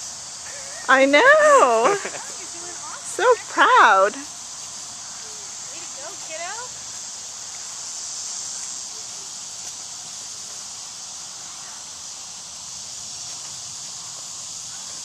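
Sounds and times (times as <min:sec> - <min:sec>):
insect chorus buzzing: 0:00.0 - 0:15.0.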